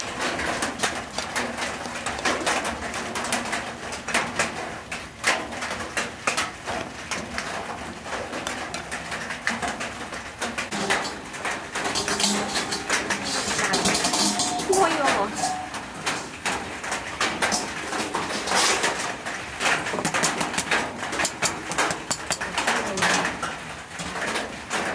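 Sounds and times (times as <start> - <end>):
spatula stirring food in glass bowl: 20.0 - 22.7.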